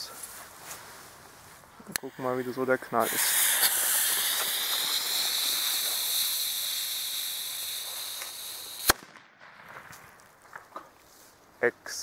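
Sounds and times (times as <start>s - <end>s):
lit fuse hissing: 1.9s - 9.0s
firecracker bang: 2.9s - 10.2s.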